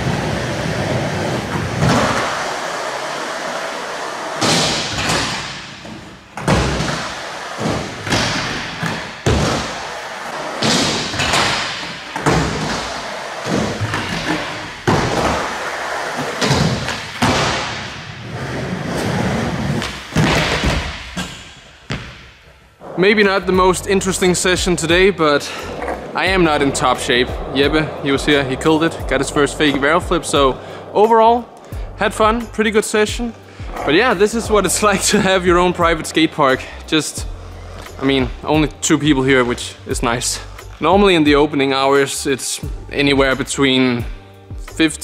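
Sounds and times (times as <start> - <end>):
skateboard wheels rolling on concrete: 0.0 - 22.0, 22.8 - 31.7
skater slamming onto floor: 4.4 - 9.8, 16.2 - 18.2, 19.0 - 22.3.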